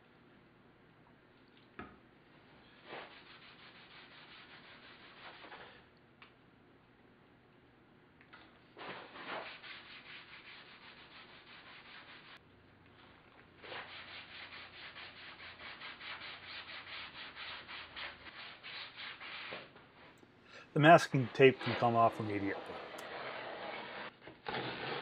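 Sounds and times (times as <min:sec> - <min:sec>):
cloth rag rubbing on wood: 0:02.8 - 0:05.7, 0:08.8 - 0:12.4, 0:13.6 - 0:19.8, 0:20.8 - 0:24.1.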